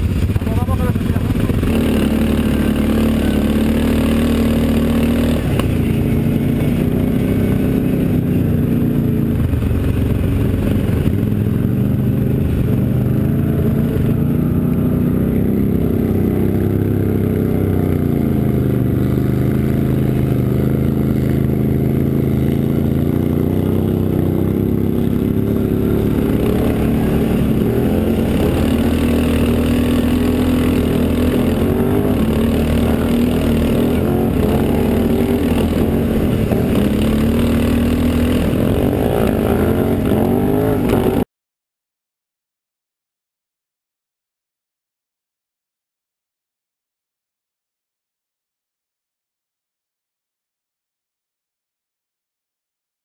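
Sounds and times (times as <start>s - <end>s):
quad bike engine running: 0.0s - 41.3s.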